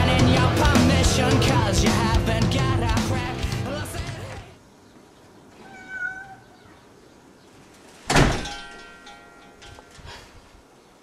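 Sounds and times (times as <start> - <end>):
wooden door slamming shut: 8.0 - 8.6.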